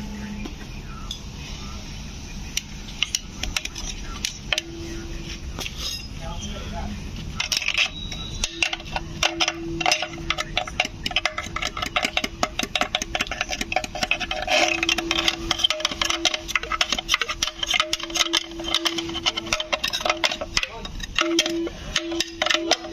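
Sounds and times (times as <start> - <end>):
steady hum: 0.0 - 22.9
metal scraping and clicking: 7.2 - 22.9.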